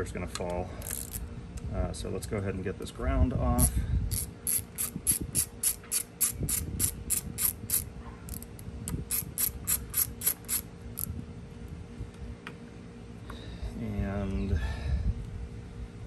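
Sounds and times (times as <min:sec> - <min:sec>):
socket ratchet clicking rapidly: 0:00.8 - 0:01.2, 0:03.6 - 0:11.1.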